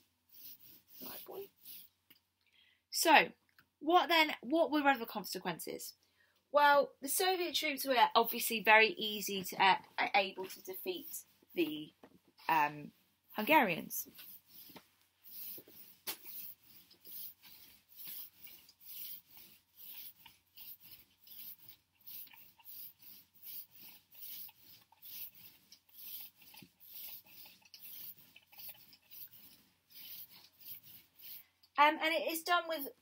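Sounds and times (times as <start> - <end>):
marker squeaking on whiteboard: 13.4 - 31.4.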